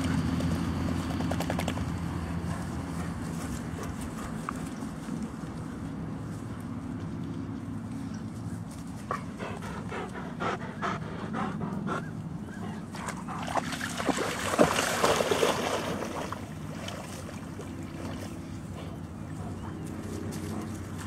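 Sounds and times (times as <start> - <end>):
dog splashing in shallow water: 12.9 - 18.7.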